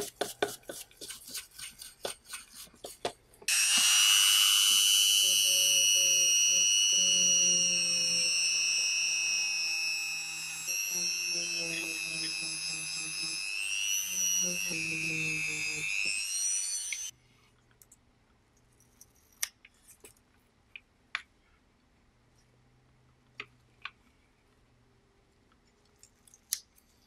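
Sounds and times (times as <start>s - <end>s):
rotary tool whining: 3.5s - 17.1s.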